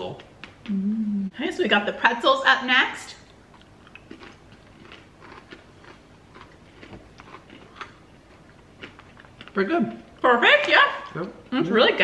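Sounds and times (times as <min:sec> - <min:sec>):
faint crunching and chewing: 0:03.2 - 0:10.3.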